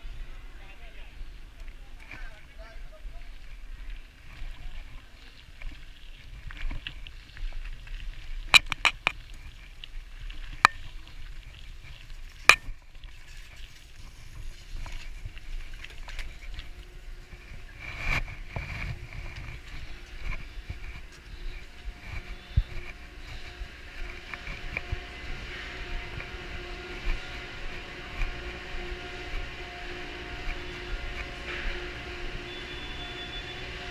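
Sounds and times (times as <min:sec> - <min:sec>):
bike tyres rolling on gravel: 0:00.0 - 0:33.9
bike clicks and knocks: 0:08.4 - 0:09.4, 0:12.3 - 0:13.2
lift machinery humming: 0:16.6 - 0:33.9.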